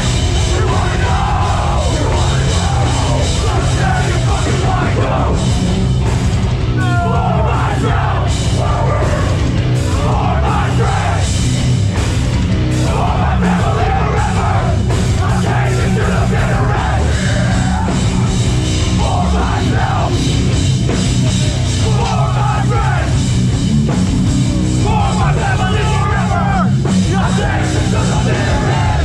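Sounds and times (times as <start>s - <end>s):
shouted vocals: 0.0s - 5.5s, 6.7s - 11.3s, 12.8s - 20.2s, 21.7s - 23.2s, 24.8s - 29.0s
live hardcore band playing: 0.0s - 29.0s.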